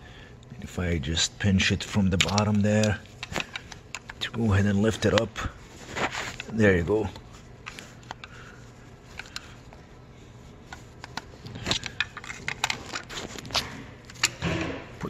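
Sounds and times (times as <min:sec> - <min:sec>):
screwdriver clicks and scrapes: 0:02.1 - 0:05.3, 0:09.1 - 0:09.6, 0:10.6 - 0:14.4.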